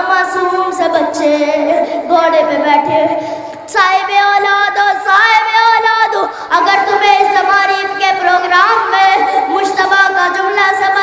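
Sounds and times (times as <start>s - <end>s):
boy chanting a lament: 0.0s - 11.0s
boy breathing: 1.7s - 2.1s, 3.0s - 3.7s, 6.2s - 6.6s, 9.2s - 9.6s.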